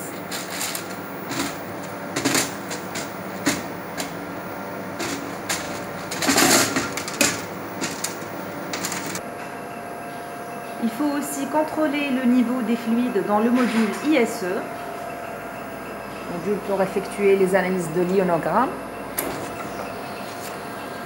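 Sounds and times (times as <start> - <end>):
loose plastic cuvettes rattling: 5.0 - 9.2.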